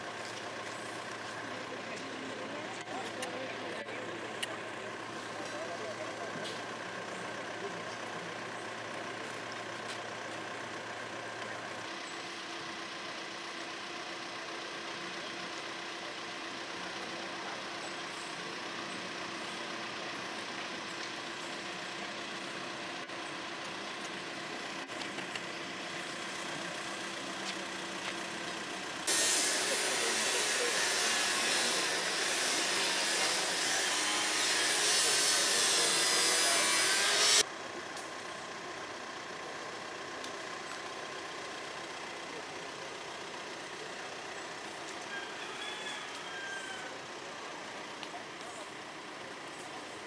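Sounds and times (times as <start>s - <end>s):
power saw cutting: 29.0s - 37.5s.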